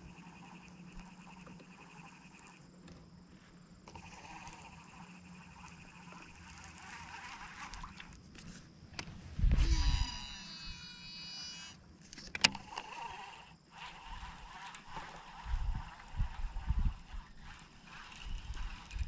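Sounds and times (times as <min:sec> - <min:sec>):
faint steady hum: 0:00.0 - 0:19.0
reel spool whining: 0:00.0 - 0:19.0
rod and reel handling: 0:03.8 - 0:19.0.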